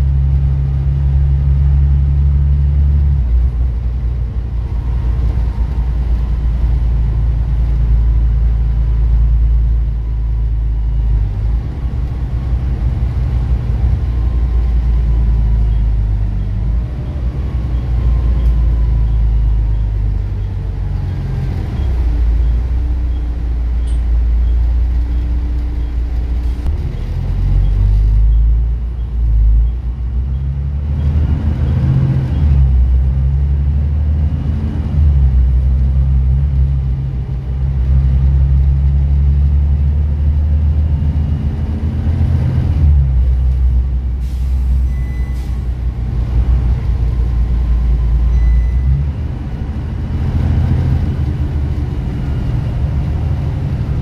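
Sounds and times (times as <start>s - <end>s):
bus diesel engine rumble: 0.0s - 54.0s.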